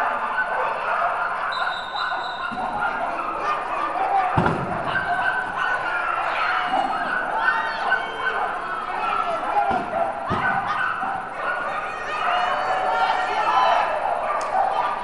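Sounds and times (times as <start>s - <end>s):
crowd chatter and calls: 0.0s - 15.0s
dogs barking: 0.0s - 15.0s
thump: 4.4s - 4.9s, 9.7s - 10.6s.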